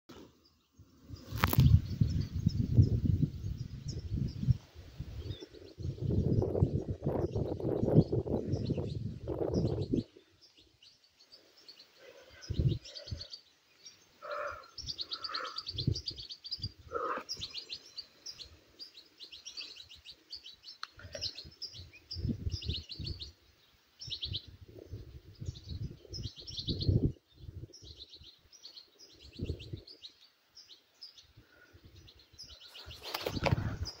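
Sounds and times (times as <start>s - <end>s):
small birds chirping: 0.1s - 34.0s
wind gusts buffeting microphone: 1.1s - 10.4s, 12.4s - 13.3s, 14.7s - 17.6s, 21.0s - 23.4s, 24.0s - 28.2s, 29.2s - 30.0s, 31.8s - 34.0s
lower bird calls: 1.1s - 34.0s.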